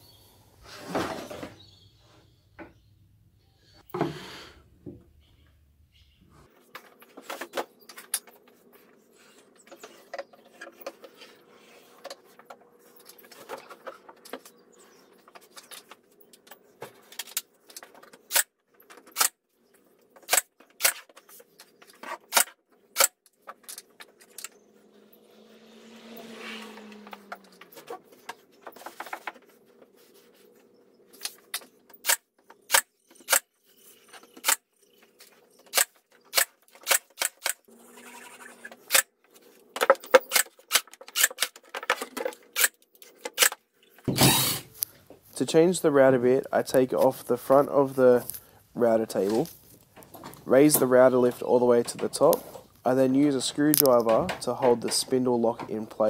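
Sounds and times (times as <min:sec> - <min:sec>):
tools and parts clicking: 0:15.2 - 0:24.7, 0:31.2 - 0:37.7, 0:38.6 - 0:44.9
small motor whirring: 0:44.1 - 0:44.7.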